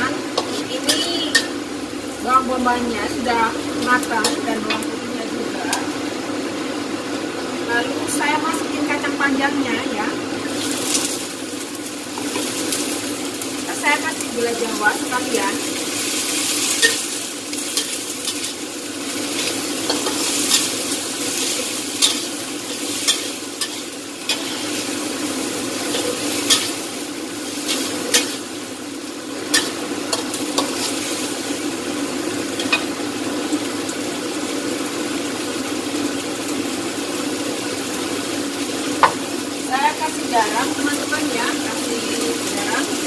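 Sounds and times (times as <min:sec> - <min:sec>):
vegetables sizzling in a wok: 0:00.0 - 0:43.0
metal spatula scraping a pan: 0:00.4 - 0:01.5, 0:21.3 - 0:25.0.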